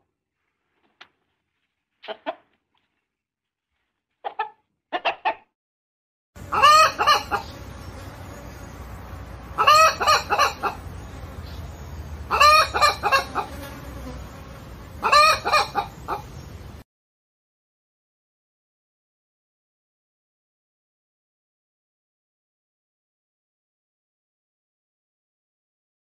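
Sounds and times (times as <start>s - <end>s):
hen clucking: 2.0s - 2.5s, 4.2s - 5.5s, 6.4s - 8.3s, 9.5s - 13.8s, 15.0s - 16.5s
loud hen call: 6.4s - 7.6s, 9.5s - 10.8s, 12.3s - 13.7s, 15.0s - 16.3s.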